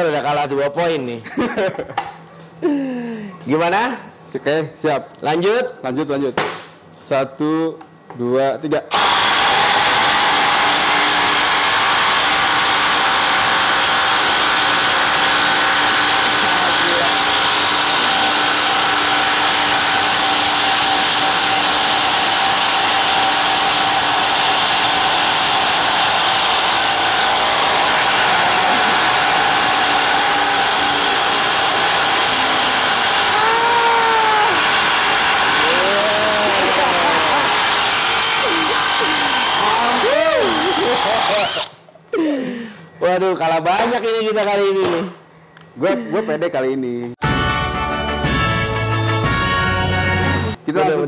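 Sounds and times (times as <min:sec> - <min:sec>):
impact drivers boring into wood: 0:08.9 - 0:41.8.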